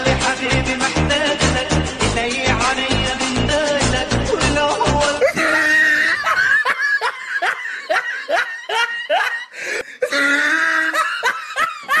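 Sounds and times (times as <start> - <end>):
person laughing: 5.0 - 12.0.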